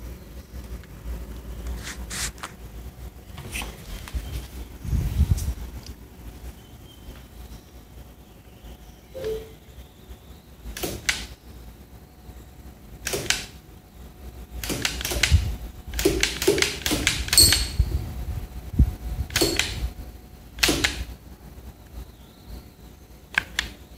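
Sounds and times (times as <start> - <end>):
rubber band gun firing: 10.8 - 11.3, 13.0 - 13.6, 14.6 - 17.8, 20.6 - 21.1.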